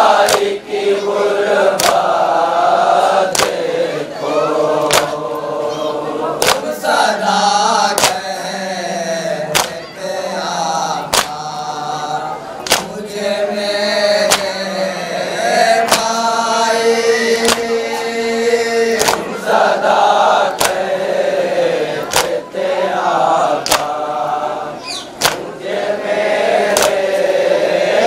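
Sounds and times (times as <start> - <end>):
chorus of men chanting: 0.0 - 28.0
hands slapping chests: 0.2 - 0.6, 1.7 - 2.2, 3.3 - 3.6, 4.8 - 5.2, 6.4 - 6.8, 7.9 - 8.3, 9.5 - 9.9, 11.0 - 11.6, 12.6 - 13.1, 14.2 - 14.6, 15.8 - 16.3, 17.4 - 17.8, 19.0 - 19.4, 20.5 - 20.9, 22.0 - 22.5, 23.6 - 24.0, 25.2 - 25.5, 26.7 - 27.2.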